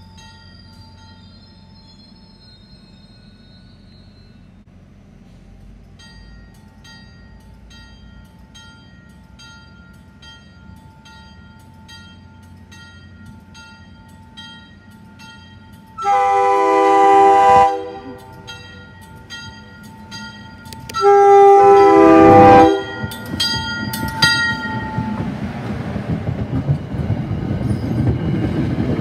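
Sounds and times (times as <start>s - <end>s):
train bell striking: 0.0s - 4.6s, 5.6s - 25.4s
train rumble: 0.0s - 29.0s
train horn blast: 16.0s - 18.5s, 20.9s - 23.1s.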